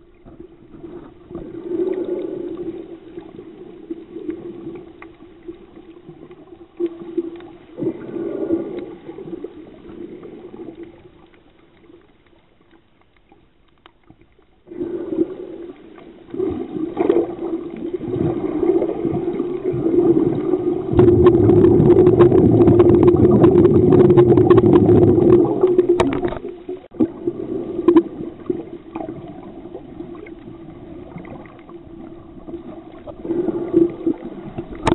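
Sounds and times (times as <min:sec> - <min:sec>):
crackling water noise: 0:00.0 - 0:34.9
underwater low hum: 0:00.0 - 0:34.9
loud underwater rushing: 0:14.7 - 0:34.9.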